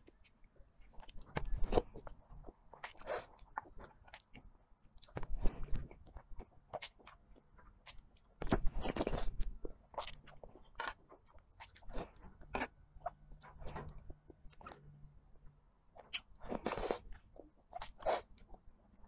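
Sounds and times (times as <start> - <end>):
wet smacking and chewing: 0.0 - 15.0.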